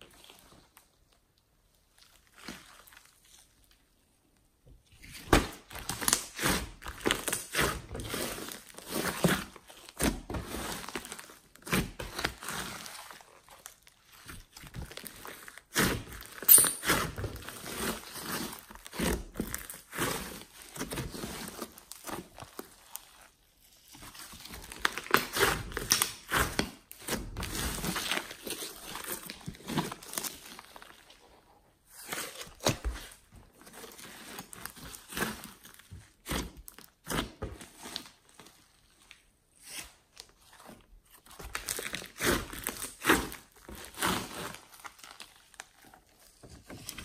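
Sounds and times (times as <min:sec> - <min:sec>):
slime crackling and popping: 0:41.2 - 0:46.3.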